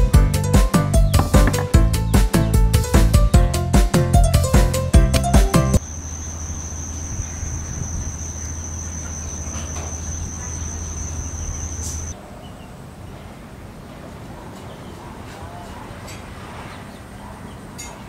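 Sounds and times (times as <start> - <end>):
background music: 0.0 - 5.8
high-pitched insect trill: 5.8 - 12.2.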